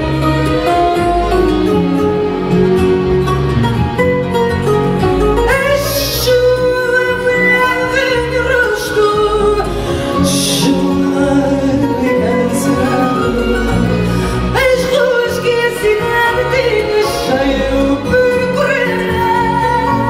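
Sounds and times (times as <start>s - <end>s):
plucked guitars: 0.0s - 20.0s
woman singing: 5.4s - 20.0s.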